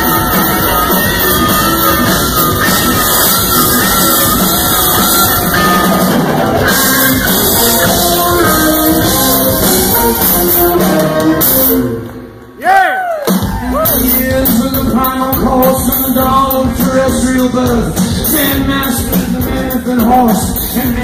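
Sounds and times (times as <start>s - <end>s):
electric guitar lead lines: 0.0s - 12.5s
live rock band playing: 0.0s - 12.6s, 13.2s - 21.0s.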